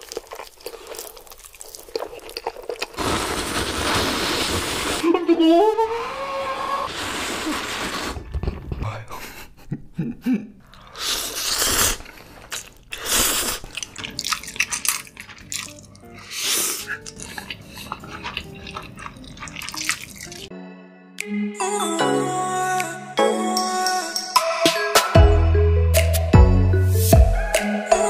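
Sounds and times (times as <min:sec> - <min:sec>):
chewing: 0:00.0 - 0:03.0, 0:10.7 - 0:20.5
loud noodle slurping: 0:00.1 - 0:05.0, 0:06.1 - 0:08.8, 0:10.7 - 0:20.5.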